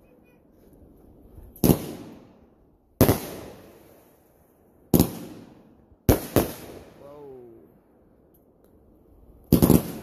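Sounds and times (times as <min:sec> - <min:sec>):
fireworks bangs echoing: 0:01.5 - 0:04.1, 0:04.9 - 0:07.1, 0:09.4 - 0:10.0.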